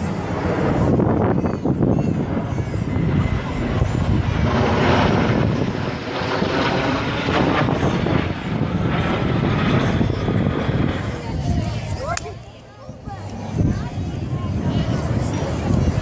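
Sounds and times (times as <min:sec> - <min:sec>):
aircraft engines droning overhead: 0:00.0 - 0:16.0
wind on microphone: 0:00.0 - 0:16.0.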